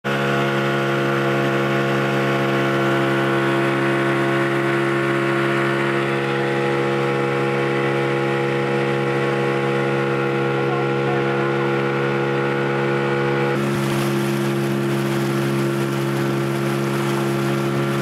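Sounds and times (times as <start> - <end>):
outboard motor running: 0.0 - 18.0
wind and water rushing: 13.6 - 18.0.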